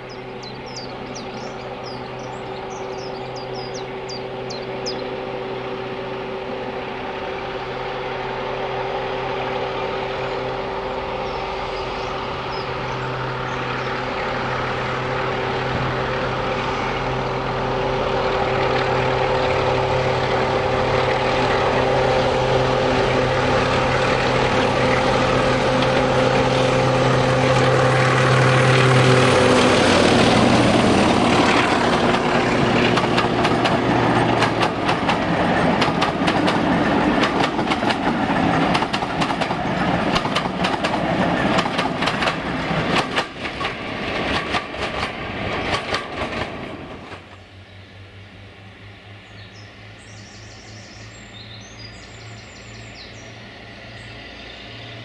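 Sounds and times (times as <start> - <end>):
diesel locomotive engine working: 0.0 - 55.0
wheels clicking over rail joints: 29.4 - 47.6.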